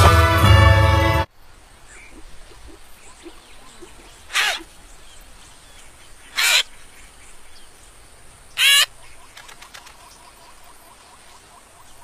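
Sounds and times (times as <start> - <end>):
insects: 1.3 - 12.0
birds chirping: 1.8 - 12.0
cartoon nestlings crying: 4.3 - 4.7, 6.4 - 6.7, 8.6 - 8.9.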